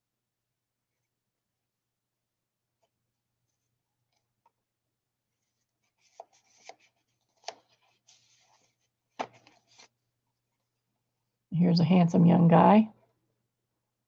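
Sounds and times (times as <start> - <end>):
paper tag sliding rustle: 5.4 - 10.0
card tapping against pages: 6.0 - 7.8, 9.1 - 9.9.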